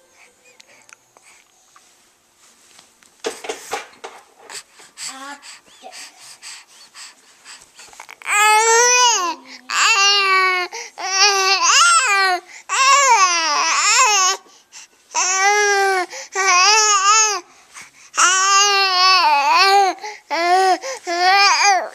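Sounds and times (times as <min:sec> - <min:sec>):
baby babbling: 0:08.0 - 0:14.4, 0:15.2 - 0:17.4, 0:18.2 - 0:21.9.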